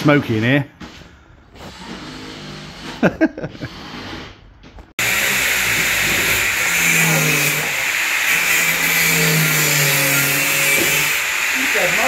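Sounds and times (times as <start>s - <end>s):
angle grinder cutting steel: 5.0s - 12.0s.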